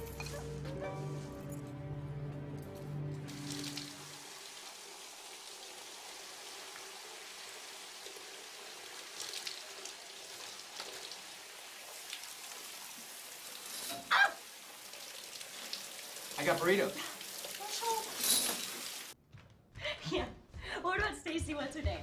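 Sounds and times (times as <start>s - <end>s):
shower water running: 2.4s - 19.2s.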